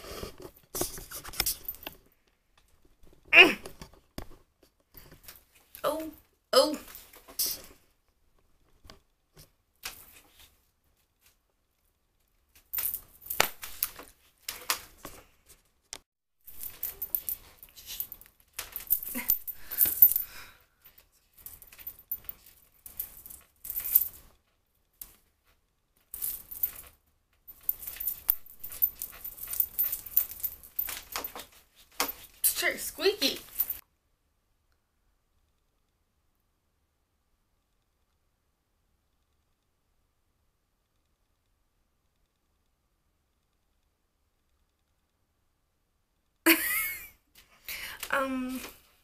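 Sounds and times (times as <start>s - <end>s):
scratchy rustling of hair: 16.5s - 20.3s, 27.5s - 33.8s.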